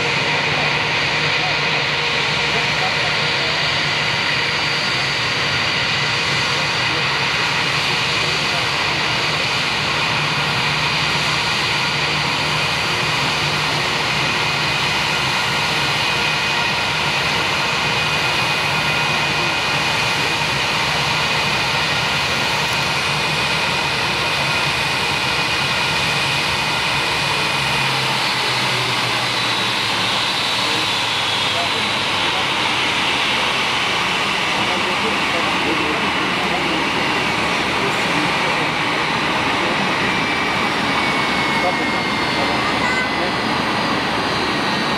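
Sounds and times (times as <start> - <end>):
high engine whine: 0.0 - 44.9
jet engines rushing: 0.0 - 44.9.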